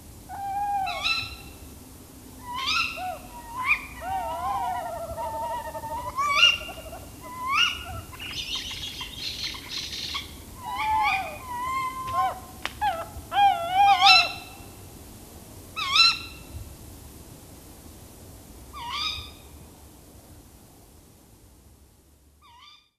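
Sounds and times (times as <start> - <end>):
owls calling in alarm: 0.3 - 1.7, 2.4 - 14.8, 15.8 - 16.5, 18.7 - 19.5, 22.4 - 22.9.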